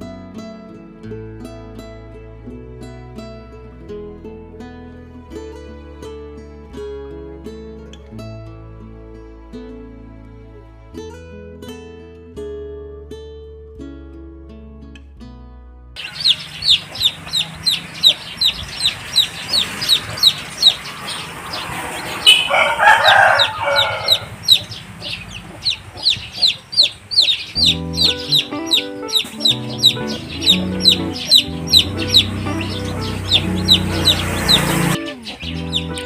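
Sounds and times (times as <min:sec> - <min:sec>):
chicks peeping: 0:16.0 - 0:36.0
longer lower chick call: 0:16.0 - 0:36.0.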